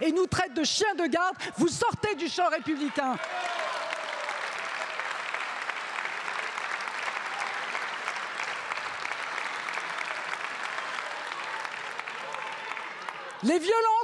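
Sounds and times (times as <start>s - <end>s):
crowd applauding: 2.4s - 14.0s.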